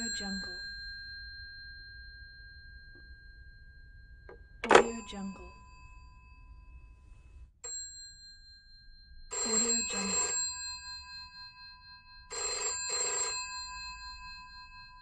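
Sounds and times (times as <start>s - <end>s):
telephone bell tap: 0.0s - 6.3s, 9.3s - 11.2s, 12.3s - 14.8s
telephone bell ringing: 0.0s - 15.0s.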